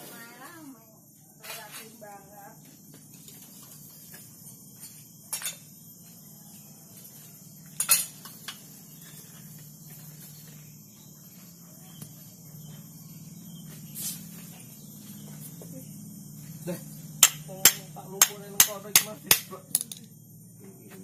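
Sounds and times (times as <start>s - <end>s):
steady low hum: 0.0s - 21.0s
metal parts clinking: 19.7s - 20.1s.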